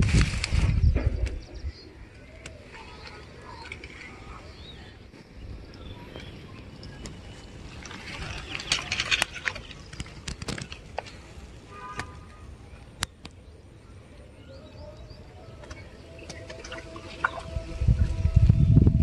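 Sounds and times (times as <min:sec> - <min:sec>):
hands handling fish: 0:02.3 - 0:13.4.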